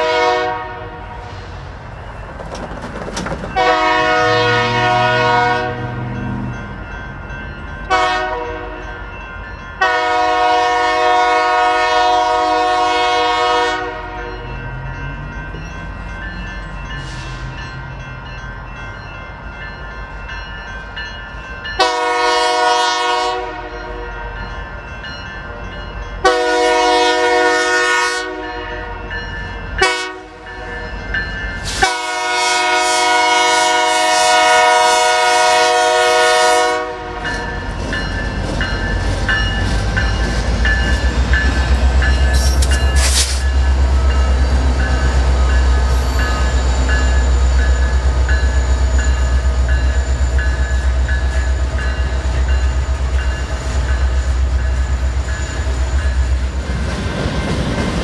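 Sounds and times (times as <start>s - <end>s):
locomotive air horn: 0.0s - 1.4s, 3.6s - 6.1s, 7.9s - 8.8s, 9.8s - 14.5s, 21.8s - 24.2s, 26.2s - 29.1s, 29.8s - 30.5s, 31.6s - 37.4s
train rumbling past: 0.0s - 58.0s
wheels clickety-clack on rails: 1.6s - 4.7s, 36.8s - 58.0s.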